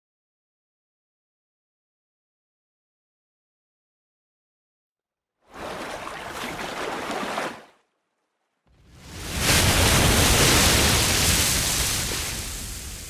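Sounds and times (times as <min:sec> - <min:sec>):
ocean surf waves: 0:05.5 - 0:07.8, 0:08.8 - 0:13.0.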